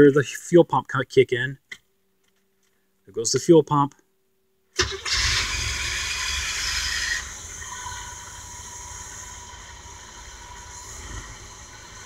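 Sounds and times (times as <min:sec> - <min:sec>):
engine starting and idling: 0:04.8 - 0:12.0.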